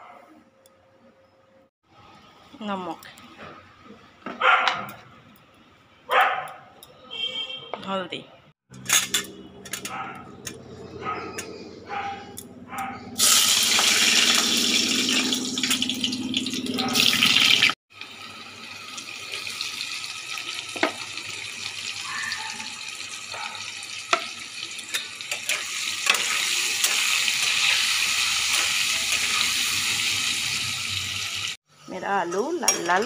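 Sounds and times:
potatoes sizzling in hot oil: 13.2 - 31.6.

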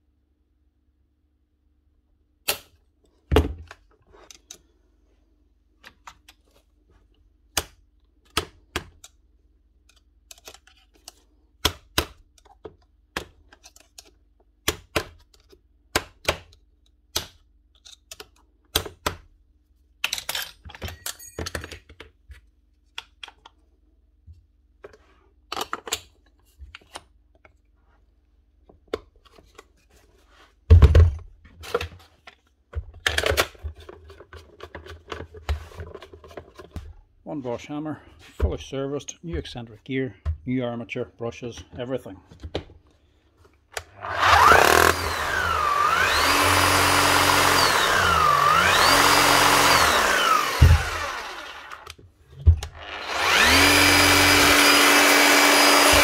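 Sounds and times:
hand tools and metal parts clinking: 20.0 - 22.0.

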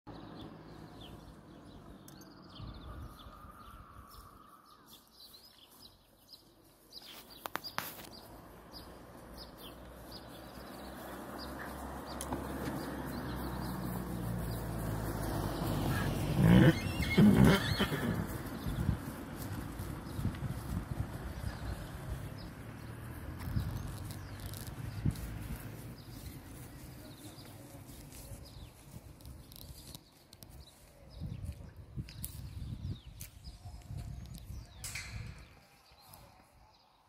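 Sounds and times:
horse neighing: 15.9 - 18.3.

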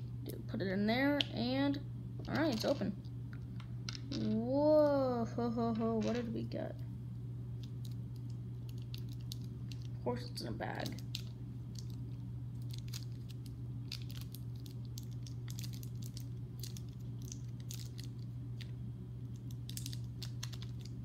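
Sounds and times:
low hum: 0.0 - 21.0
plastic bag crinkling: 7.6 - 10.0, 10.7 - 18.7, 19.3 - 21.0.

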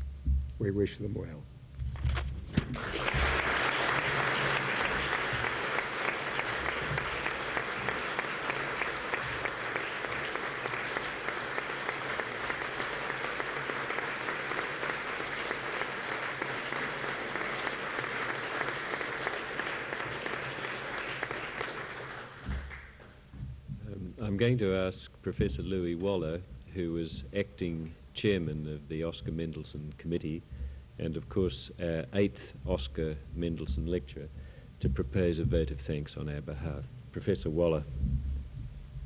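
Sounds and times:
audience applauding: 2.6 - 23.2.

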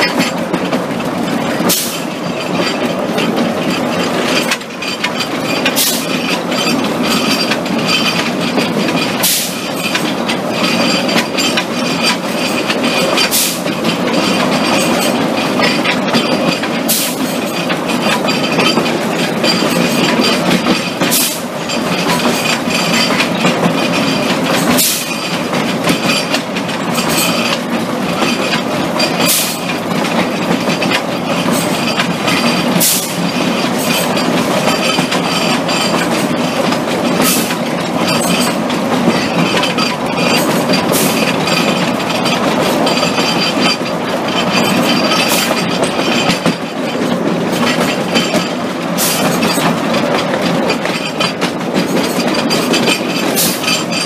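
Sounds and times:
sharp track click: 0.0 - 54.0
train wheels rumbling on track: 0.0 - 54.0.

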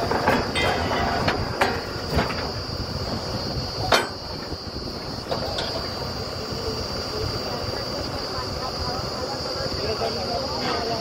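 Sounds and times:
metal clanks: 0.0 - 4.6, 5.2 - 6.0
drilling rig whining: 0.0 - 11.0.

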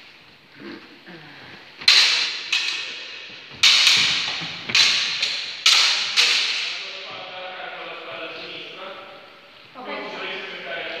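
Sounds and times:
sword blades clashing: 1.8 - 7.0.

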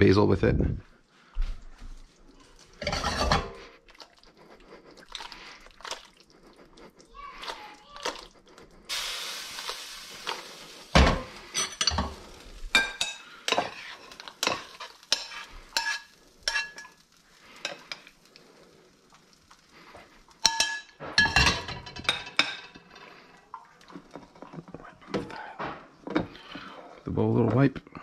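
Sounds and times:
utensil clinking against pan: 2.8 - 3.6, 11.1 - 17.0, 20.4 - 23.0.

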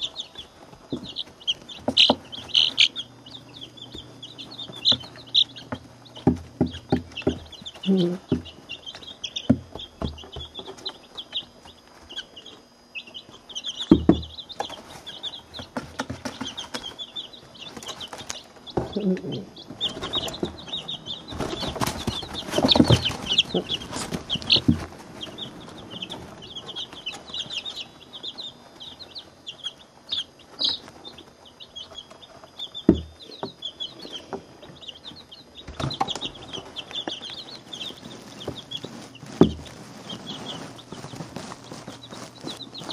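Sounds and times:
chicks peeping: 0.0 - 42.9
tapping and scuffling in wood shavings: 13.2 - 29.6, 35.2 - 42.9.

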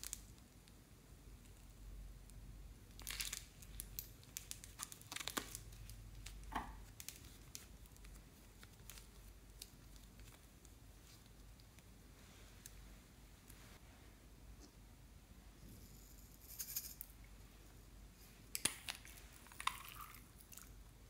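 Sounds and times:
slime crackling and tearing: 2.9 - 10.5.

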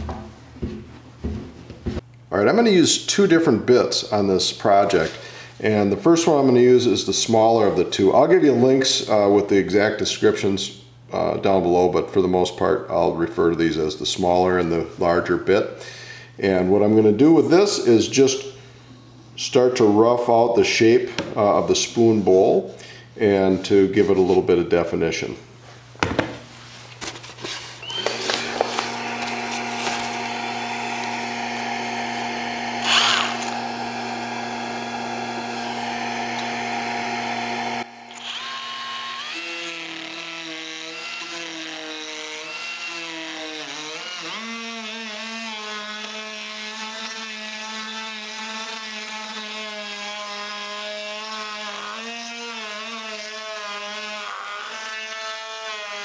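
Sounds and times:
die grinder whining: 27.8 - 56.0.

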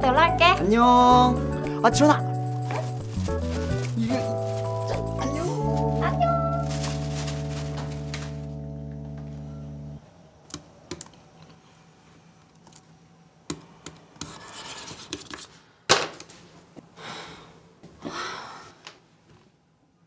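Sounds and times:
rustling rubbing noises: 2.2 - 8.6.

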